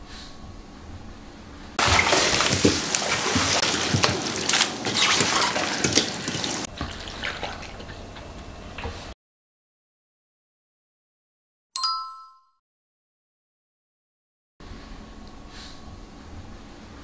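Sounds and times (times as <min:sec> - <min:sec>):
water splashing and pouring: 0:01.8 - 0:08.4.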